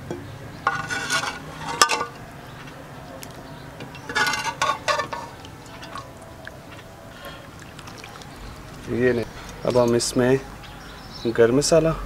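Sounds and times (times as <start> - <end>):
ladle scraping metal pot: 0.6 - 2.2, 3.8 - 6.3.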